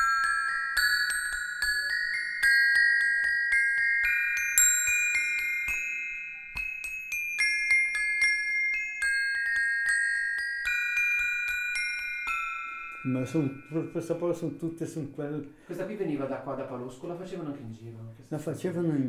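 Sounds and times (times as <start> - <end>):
metal bars struck in melody: 0.0 - 15.2.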